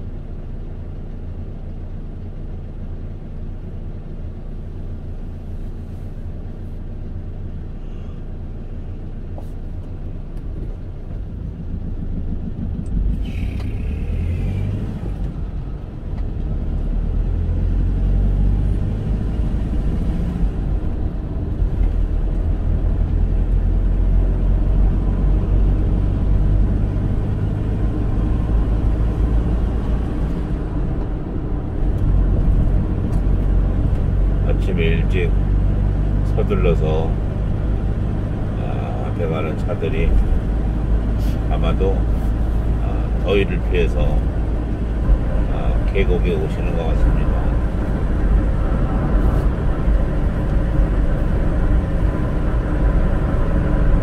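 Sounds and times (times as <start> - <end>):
car engine and tyre rumble: 0.0 - 54.0.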